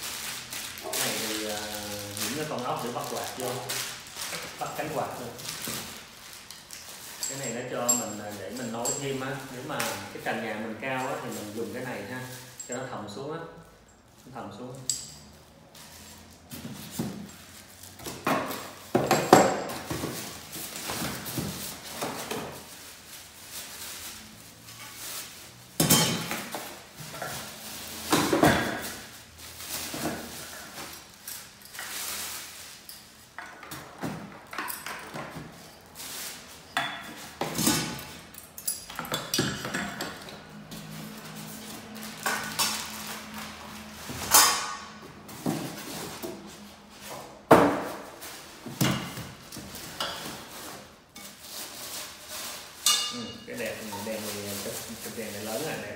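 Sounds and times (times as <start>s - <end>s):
plastic bags crinkling: 0.0s - 12.9s, 19.7s - 33.4s, 40.5s - 44.9s, 49.3s - 55.9s
metal parts clinking on table: 6.8s - 9.9s.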